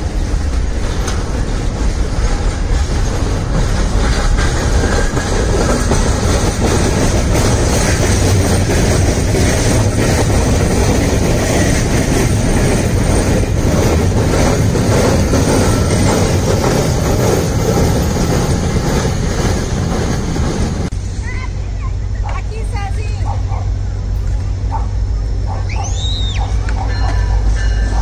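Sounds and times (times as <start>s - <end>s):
freight wagons rattling and banging: 0.0s - 20.9s
wheels rumbling on rail: 0.0s - 28.0s.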